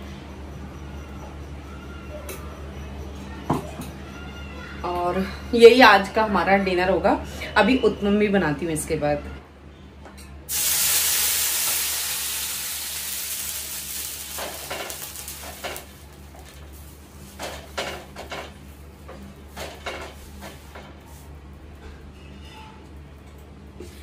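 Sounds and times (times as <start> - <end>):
hot pan sizzling: 10.5 - 18.2.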